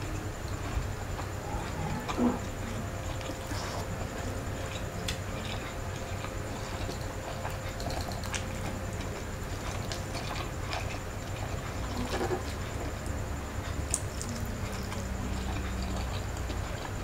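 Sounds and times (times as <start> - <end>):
chewing and wet mouth noises: 0.0 - 17.0
low steady hum: 0.0 - 17.0
small clicks of food: 4.7 - 8.6, 13.8 - 17.0.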